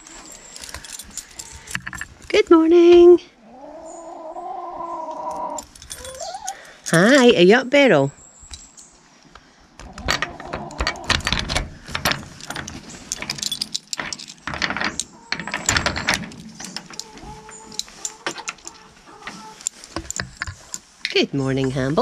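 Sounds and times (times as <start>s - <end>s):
hardware clicking and rattling: 0.5s - 2.3s, 9.8s - 22.0s.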